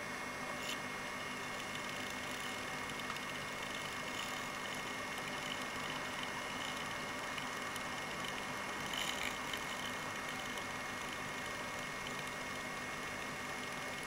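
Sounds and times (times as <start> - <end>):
small electric motor whine: 0.0 - 14.0.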